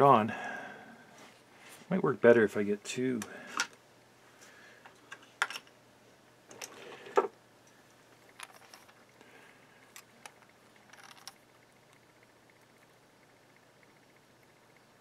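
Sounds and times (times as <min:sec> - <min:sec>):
faint ticks and scrapes: 0:06.6 - 0:15.0.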